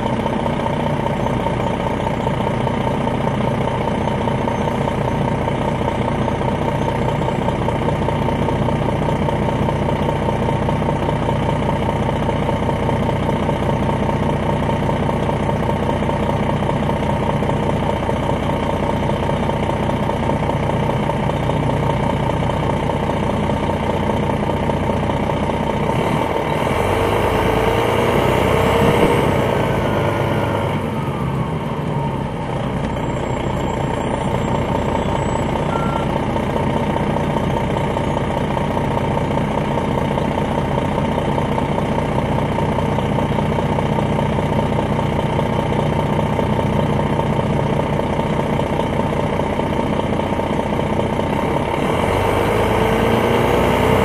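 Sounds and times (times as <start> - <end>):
diesel engine idling: 0.0 - 54.0
engine revving: 25.8 - 32.2, 51.4 - 54.0.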